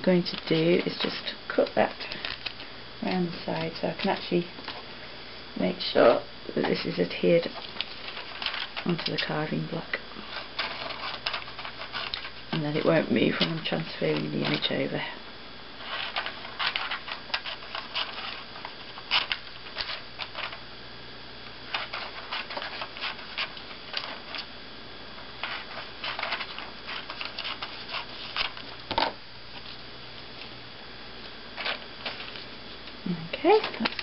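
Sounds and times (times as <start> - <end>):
paper rustling: 1.8 - 2.7, 7.4 - 9.3, 10.2 - 14.7, 15.8 - 20.6, 21.7 - 24.5, 25.4 - 29.8, 31.6 - 32.5.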